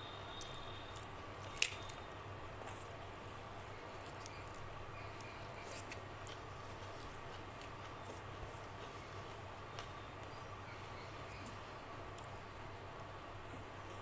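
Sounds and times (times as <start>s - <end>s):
low steady hum: 0.0s - 14.0s
wet clicks of rice mixed by hand: 0.3s - 10.4s.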